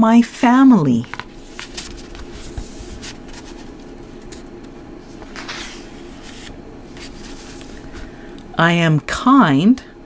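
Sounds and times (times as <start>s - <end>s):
low electrical hum: 0.0s - 10.0s
soft rustle: 1.1s - 8.1s.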